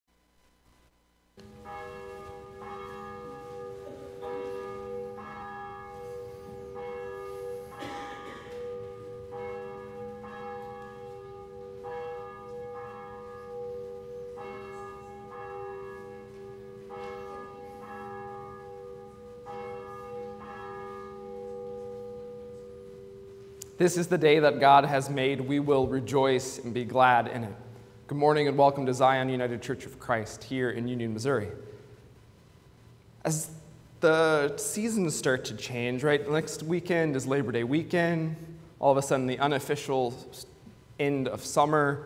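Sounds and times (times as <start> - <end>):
church bell tolling: 1.4 - 32.0.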